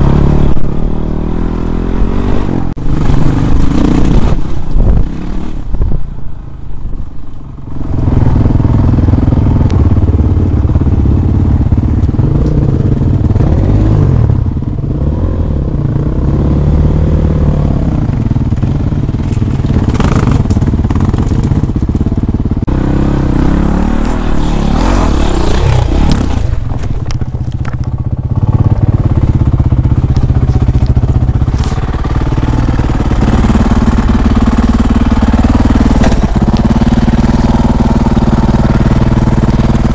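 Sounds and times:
dirt bike engine revving: 0.0 - 5.7, 7.8 - 26.9, 28.1 - 39.9
clatter and scraping on stone: 26.1 - 28.0.

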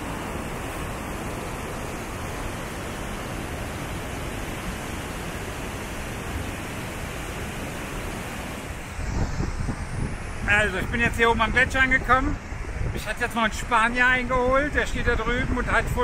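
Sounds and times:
river rushing over boulders: 0.0 - 11.8.

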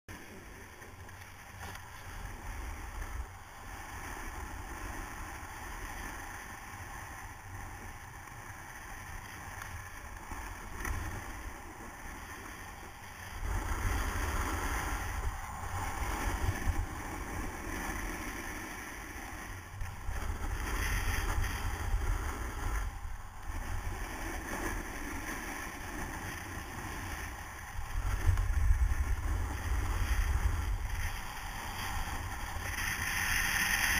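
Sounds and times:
skis scraping packed snow: 0.1 - 33.9
wind buffeting microphone: 9.7 - 33.9.

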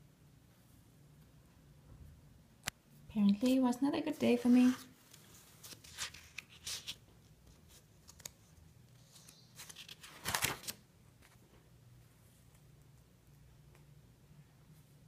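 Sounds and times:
paper page rustling: 4.2 - 11.4.

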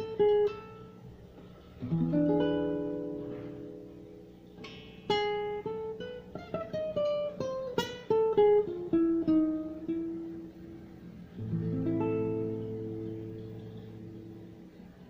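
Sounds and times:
classical guitar fingerstyle: 0.0 - 15.0.

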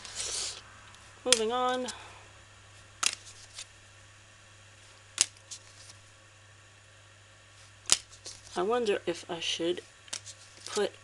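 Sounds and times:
playing cards snapping: 3.0 - 3.7, 5.2 - 5.9, 7.8 - 8.4.

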